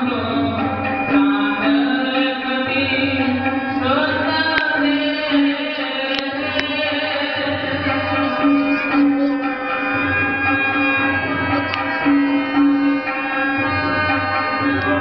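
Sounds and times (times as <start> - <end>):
devotional chanting: 0.0 - 15.0
sustained instrumental notes: 0.0 - 15.0
sharp clicks: 6.1 - 6.8.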